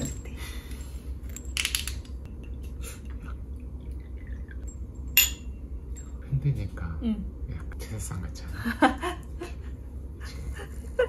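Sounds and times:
cups and tableware clinking: 0:04.2 - 0:06.2
ringing clink: 0:04.6 - 0:06.2.

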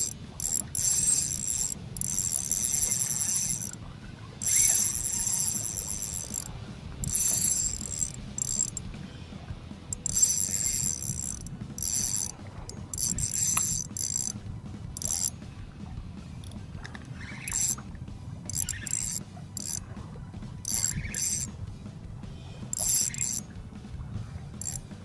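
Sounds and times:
fishing reel drag buzzing: 0:00.0 - 0:08.9, 0:09.9 - 0:15.4, 0:16.4 - 0:17.9, 0:18.5 - 0:19.9, 0:20.6 - 0:21.6, 0:22.4 - 0:23.5, 0:24.5 - 0:25.0.

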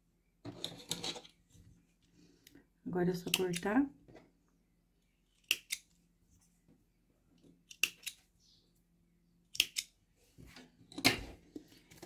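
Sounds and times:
scissors snipping thread: 0:03.2 - 0:03.8, 0:05.4 - 0:05.8, 0:09.5 - 0:09.9.

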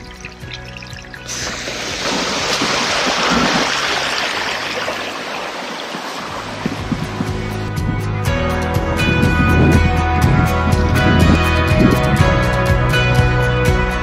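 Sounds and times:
background music: 0:00.0 - 0:05.1, 0:06.3 - 0:14.0
water rushing in rocky stream: 0:00.0 - 0:07.9.

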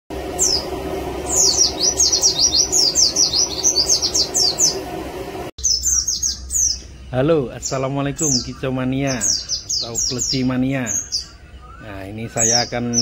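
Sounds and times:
steady low hum: 0:00.1 - 0:13.0
bird singing high thin chirps: 0:01.3 - 0:04.8, 0:05.6 - 0:07.0, 0:07.6 - 0:13.0.

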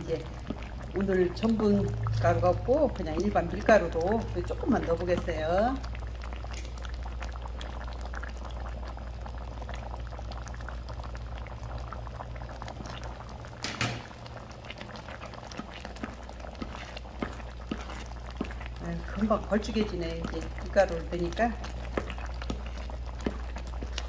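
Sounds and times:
curry bubbling in a pot: 0:00.0 - 0:24.0.

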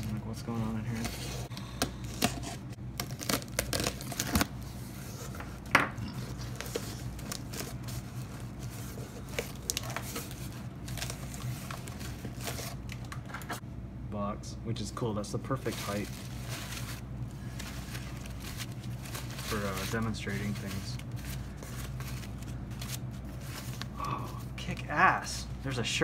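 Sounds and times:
rustling of cardboard and tissue paper: 0:00.0 - 0:01.5, 0:06.2 - 0:12.8, 0:15.5 - 0:25.7
steady low hum: 0:00.0 - 0:26.0
cardboard box ripping and crinkling: 0:02.1 - 0:04.5.

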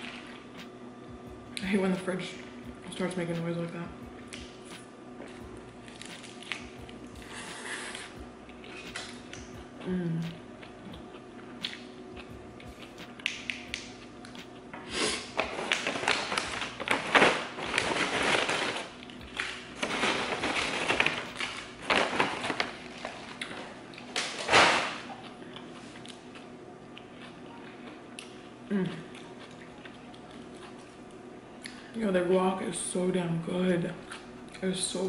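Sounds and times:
paper bag of chips crinkling: 0:15.0 - 0:25.1.

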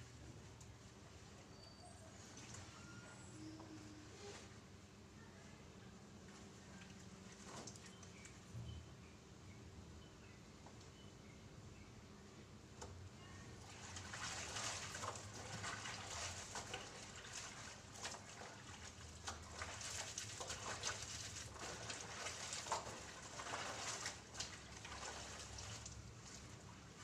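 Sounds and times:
water sloshing and splashing: 0:13.5 - 0:27.0
wet fabric rubbing: 0:13.8 - 0:26.6.

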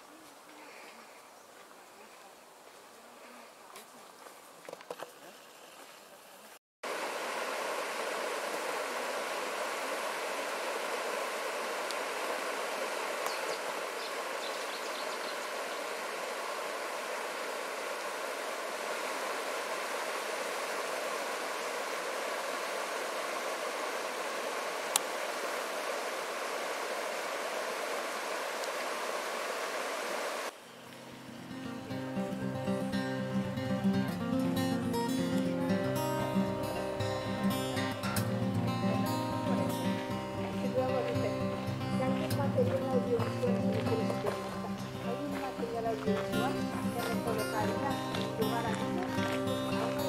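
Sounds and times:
water rushing over rocks: 0:06.9 - 0:14.4, 0:15.4 - 0:30.5.

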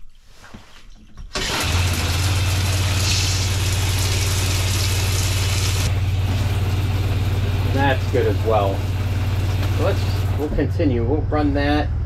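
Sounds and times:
water pump humming: 0:00.4 - 0:11.4
shower spray hissing: 0:01.7 - 0:06.5.

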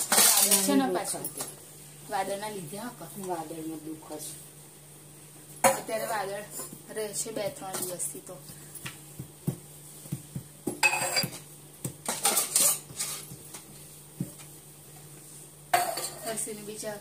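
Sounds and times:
dishes and cutlery clinking: 0:00.0 - 0:01.6, 0:10.7 - 0:13.6, 0:15.7 - 0:16.4.

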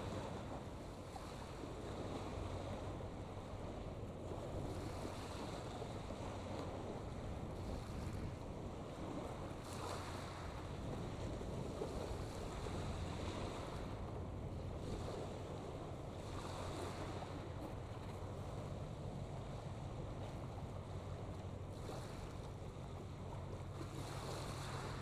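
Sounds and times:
low steady hum: 0:00.0 - 0:25.0
wind buffeting the microphone: 0:00.0 - 0:25.0.

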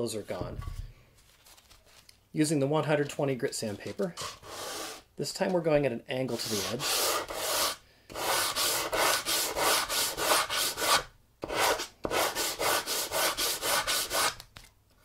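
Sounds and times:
sandpaper scratching on wood: 0:04.2 - 0:05.1, 0:06.3 - 0:14.4.

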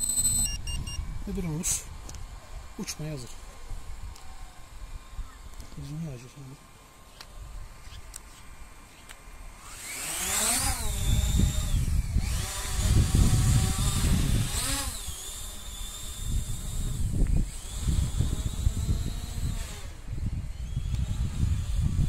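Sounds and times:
wind noise on microphone: 0:00.0 - 0:02.8, 0:09.6 - 0:22.0
drone propellers whining: 0:00.0 - 0:22.0.

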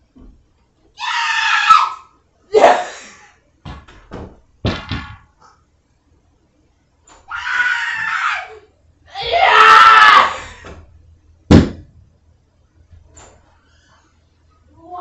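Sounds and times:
loud thump: 0:11.5 - 0:12.0.

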